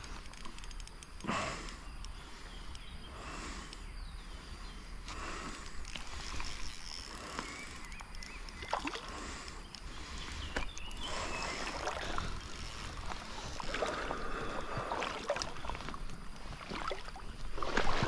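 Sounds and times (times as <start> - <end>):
small clicks and knocks: 0.0 - 2.9
river water splashing: 8.5 - 18.0.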